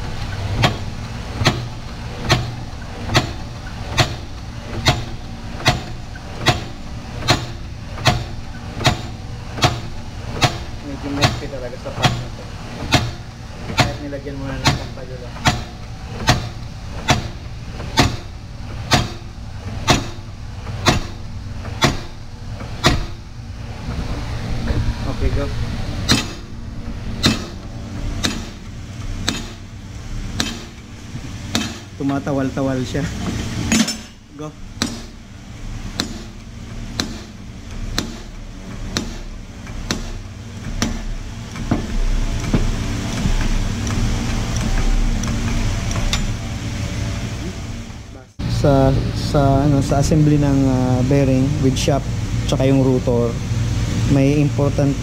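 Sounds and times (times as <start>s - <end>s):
low steady hum: 0.0s - 55.0s
sharp knocks: 0.5s - 23.2s, 26.0s - 29.7s, 30.3s - 31.9s, 34.8s - 35.2s, 35.9s - 44.0s.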